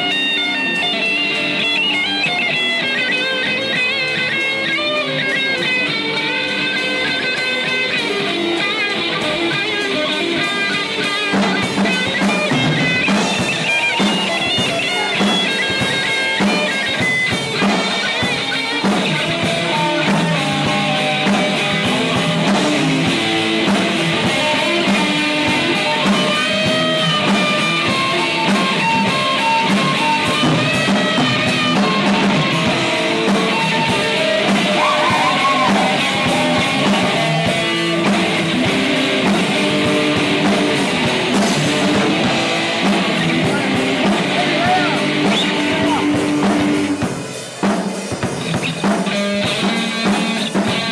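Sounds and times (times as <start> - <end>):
electric guitar melody: 0.0 - 50.9
rock band playing: 0.0 - 50.9.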